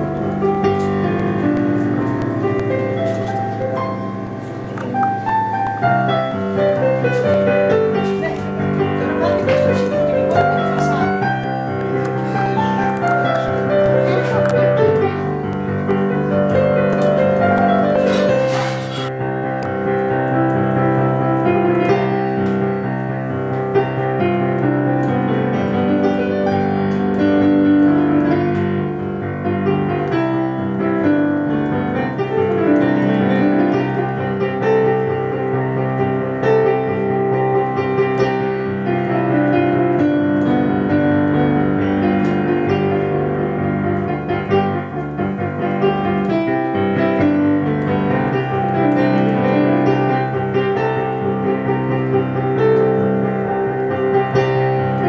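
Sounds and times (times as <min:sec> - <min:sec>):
digital piano piece: 0:00.0 - 0:55.0.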